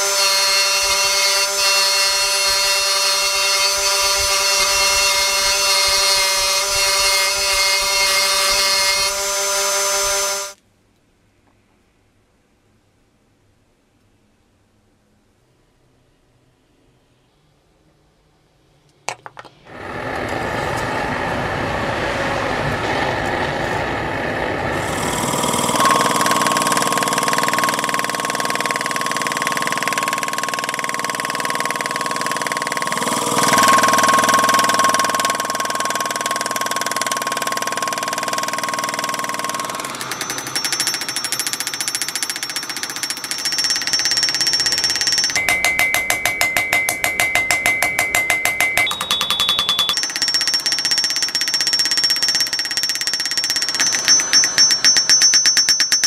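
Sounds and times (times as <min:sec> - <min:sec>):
power hammer pounding steel: 0:00.0 - 0:10.6, 0:24.2 - 0:56.0
hand hammer ringing on anvil: 0:40.0 - 0:56.0.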